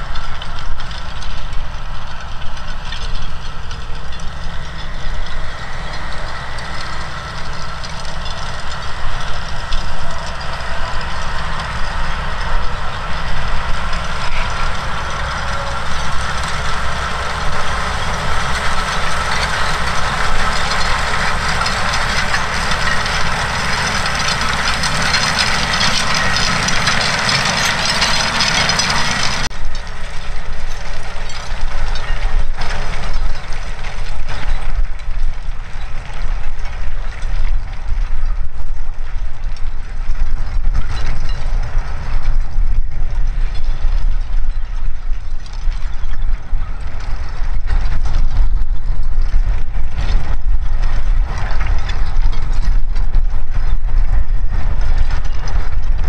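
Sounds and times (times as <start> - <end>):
harrow chains clattering: 0.0 - 37.0
tractor engine rumble: 0.0 - 56.0.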